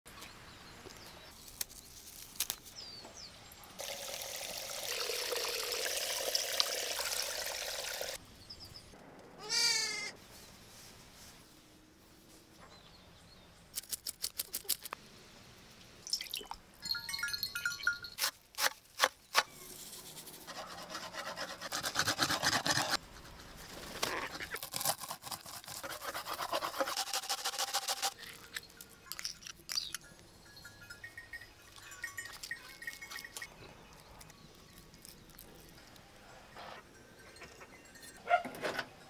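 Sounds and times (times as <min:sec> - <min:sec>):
wet rubbing and scraping: 0:19.7 - 0:29.2.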